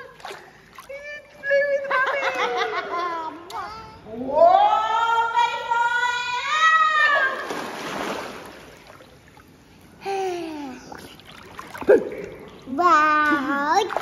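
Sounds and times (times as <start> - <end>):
splash of pool water: 7.2 - 9.5.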